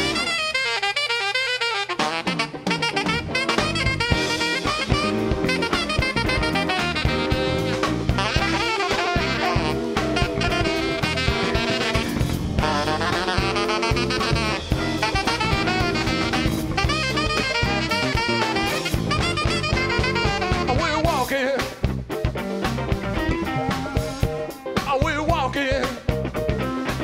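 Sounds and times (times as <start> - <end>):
saxophone solo: 0.0 - 21.4
blues band playing: 0.0 - 27.0
drum kit: 0.0 - 27.0.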